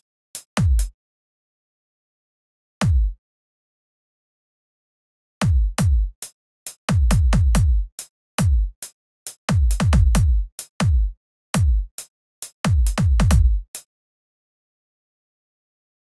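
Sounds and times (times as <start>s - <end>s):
electronic kick drum thumps: 0.6s - 0.9s, 2.8s - 3.2s, 5.4s - 6.2s, 6.9s - 8.8s, 9.5s - 12.0s, 12.6s - 13.8s.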